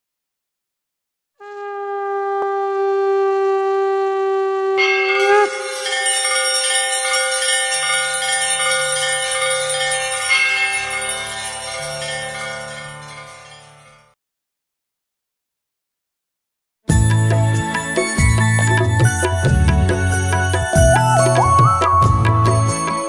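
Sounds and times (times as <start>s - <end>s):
conch shell blown: 1.4s - 6.1s
temple bells clanging: 4.8s - 14.1s.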